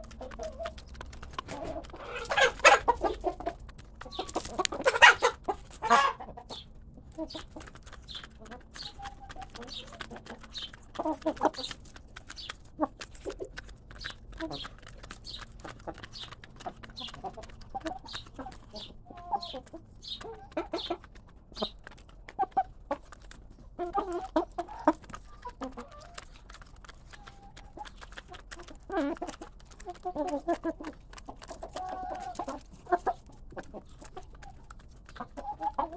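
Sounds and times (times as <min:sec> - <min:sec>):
beaks tapping ground: 0:00.0 - 0:35.9
hens clucking: 0:00.0 - 0:35.9.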